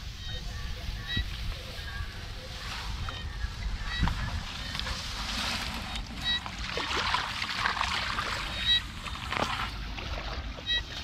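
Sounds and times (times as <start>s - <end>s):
squelching and sloshing in mud: 4.2s - 11.0s.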